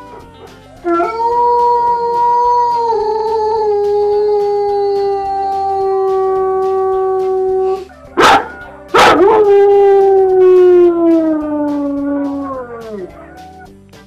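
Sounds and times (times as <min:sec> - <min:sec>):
dog howling: 0:00.0 - 0:13.7.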